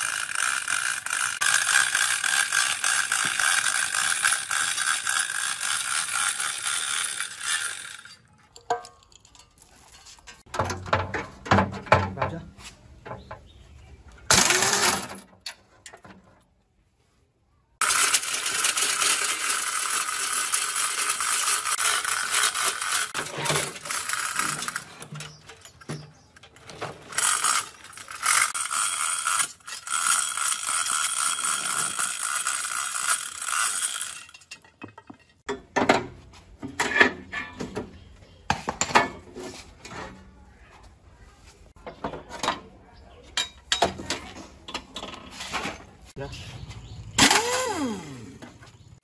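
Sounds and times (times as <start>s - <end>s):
ratchet clicking: 0.0s - 8.2s, 17.8s - 25.6s, 27.1s - 34.5s
hoist chain rattling: 0.0s - 10.5s, 17.8s - 34.8s
short loud mechanical burst: 47.1s - 48.4s.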